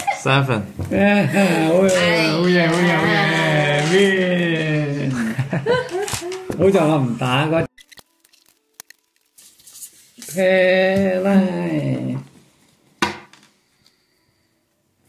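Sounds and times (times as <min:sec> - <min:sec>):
person's drawn-out voice: 0:01.2 - 0:05.2.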